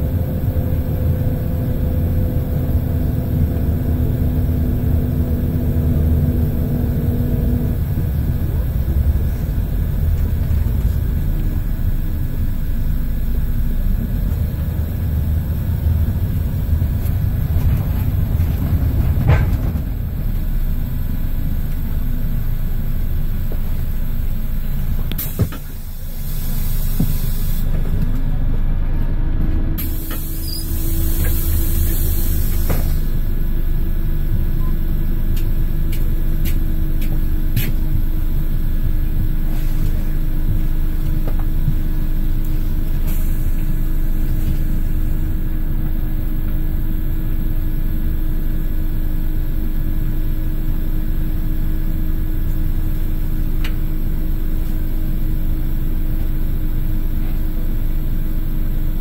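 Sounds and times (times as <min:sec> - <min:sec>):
bus diesel engine: 0:00.0 - 0:59.0
constant whine: 0:00.0 - 0:59.0
compressed air hiss: 0:25.2 - 0:27.7, 0:29.8 - 0:33.2.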